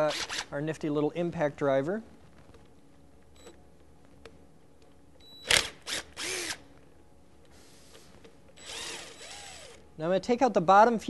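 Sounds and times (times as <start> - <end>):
impact driver whirring: 5.4 - 6.7, 8.6 - 9.8.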